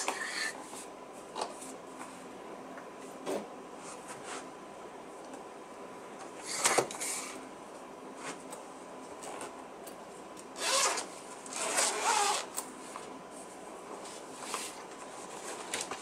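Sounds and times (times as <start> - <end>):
zipper pulled open: 10.6 - 12.5.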